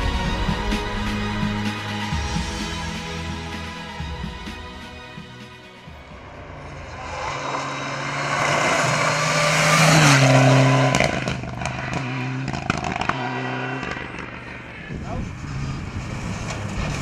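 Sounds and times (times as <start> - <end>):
rally car engine at high revs: 6.5 - 17.0.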